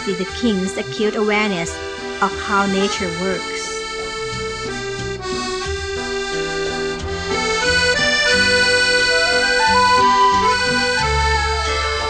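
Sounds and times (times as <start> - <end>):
instrumental music: 0.0 - 12.0.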